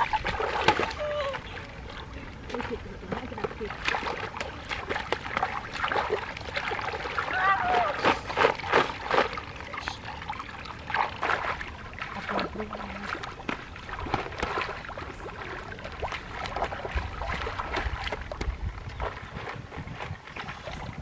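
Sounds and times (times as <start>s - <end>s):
stream water splashing: 0.0s - 21.0s.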